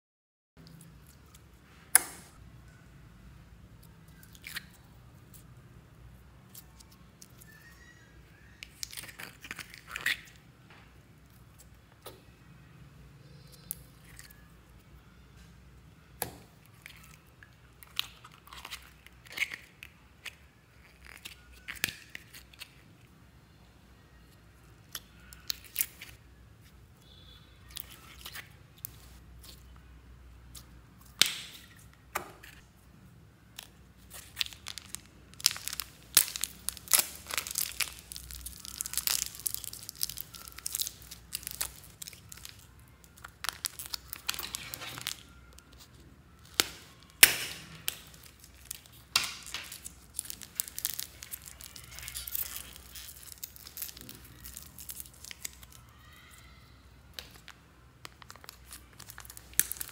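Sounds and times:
crinkling plastic: 33.5 - 56.5, 57.1 - 59.9
sticky crackling slime clicks: 33.6 - 45.2, 58.1 - 59.9.

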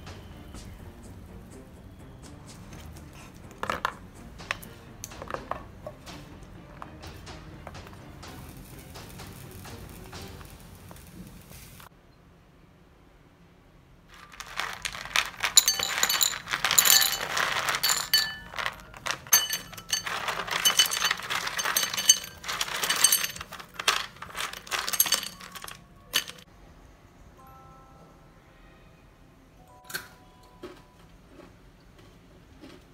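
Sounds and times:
caramel bread cubes clattering in bowl: 14.2 - 26.4.

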